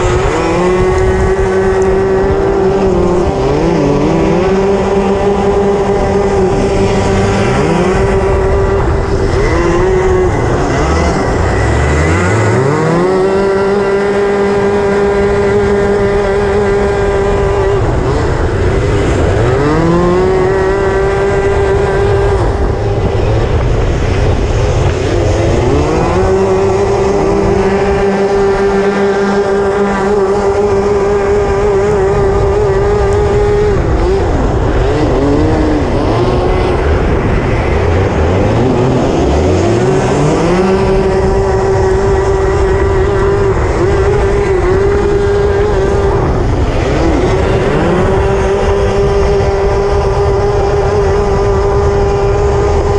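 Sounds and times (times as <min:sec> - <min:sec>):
constant rush of noise: 0:00.0 - 0:52.9
kart engine revving: 0:00.0 - 0:52.9.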